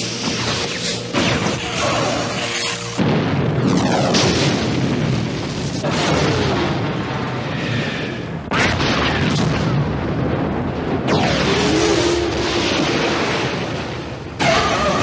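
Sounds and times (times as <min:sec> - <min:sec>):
explosion booms: 0:03.0 - 0:14.7.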